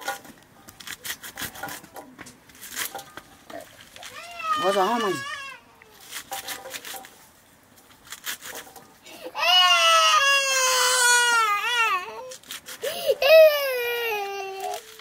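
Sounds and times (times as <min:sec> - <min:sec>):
young child crying: 0:04.0 - 0:05.8, 0:09.1 - 0:15.0.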